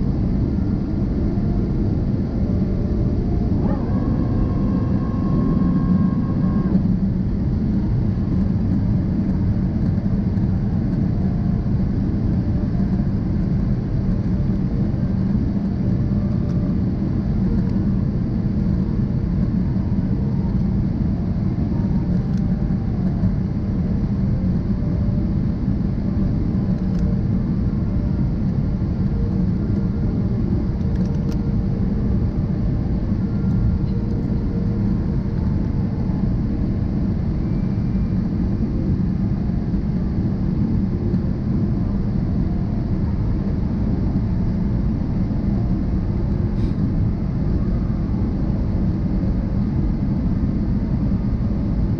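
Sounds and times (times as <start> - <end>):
airliner cabin engine rumble: 0.0 - 51.9
faint high tone: 3.5 - 6.8.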